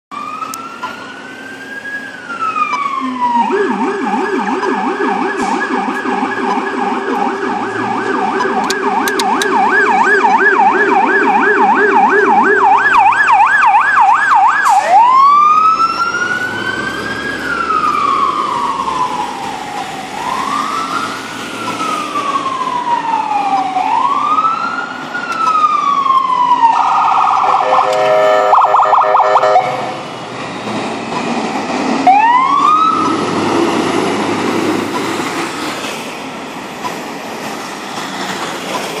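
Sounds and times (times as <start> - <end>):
deep low-pitched siren yelp: 0.1 - 30.1, 32.0 - 33.1
fire engine siren: 0.1 - 36.7.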